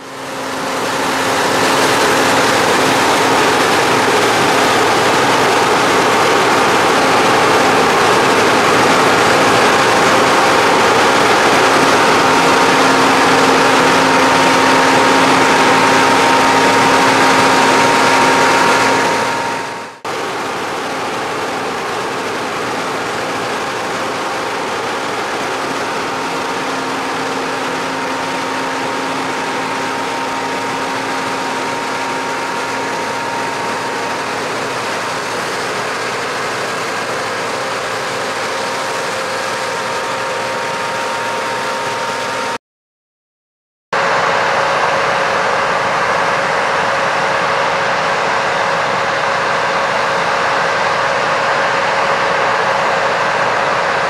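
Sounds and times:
combine harvester drone: 0:00.0 - 0:42.6, 0:44.0 - 0:54.0.

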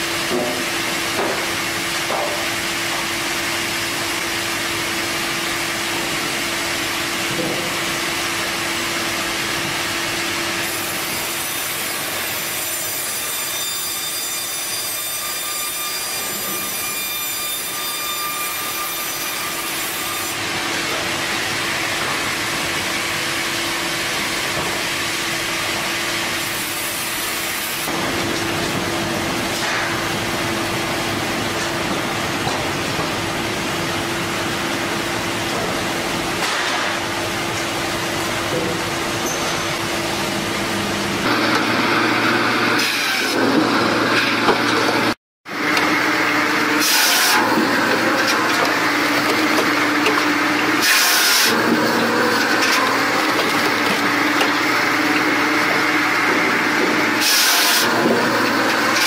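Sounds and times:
saw cutting through log: 0:10.6 - 0:21.1, 0:41.2 - 0:59.0.

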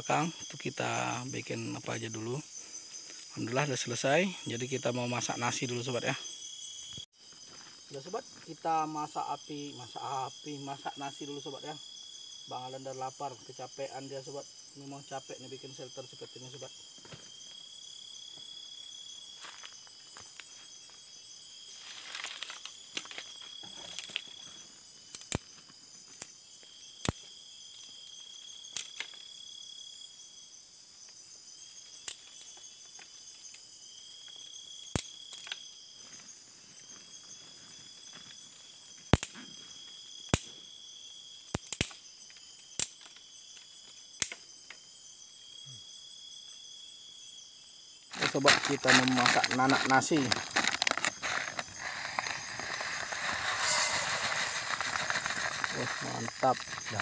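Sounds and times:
longer insect chirp: 0:00.0 - 0:57.0
night insects chirring: 0:00.0 - 0:57.0
twigs crackling and snapping: 0:21.8 - 0:24.5, 0:28.7 - 0:29.3, 0:32.0 - 0:33.1, 0:34.2 - 0:35.6, 0:41.5 - 0:44.4, 0:48.1 - 0:57.0
dry leaves rustling: 0:48.1 - 0:57.0.

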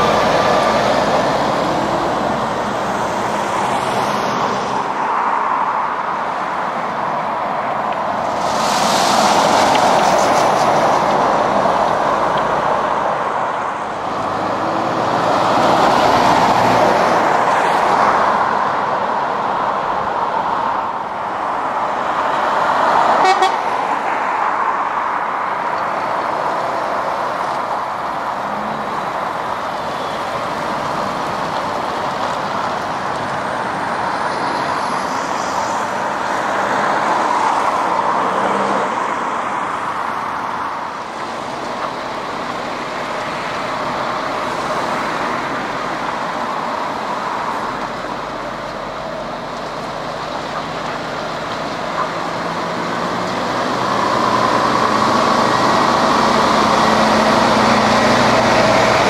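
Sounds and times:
lorries passing: 0:00.0 - 0:59.0
horn toot: 0:23.2 - 0:23.7.

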